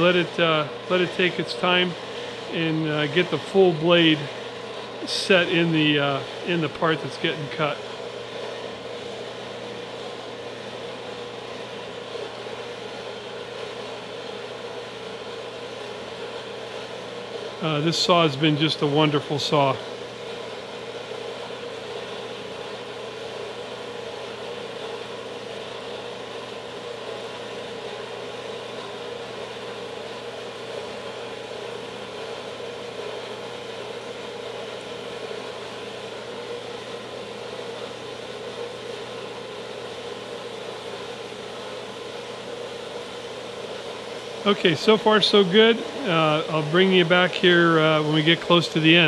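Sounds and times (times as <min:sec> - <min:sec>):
motor hum: 0:00.0 - 0:49.0
bandsaw cutting: 0:44.4 - 0:49.0.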